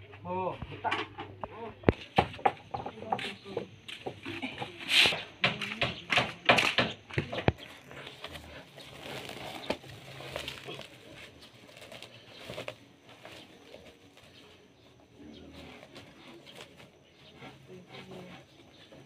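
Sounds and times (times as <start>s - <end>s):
metal buckets and gravel clanking: 7.2s - 14.6s
sack rustling: 7.8s - 14.7s.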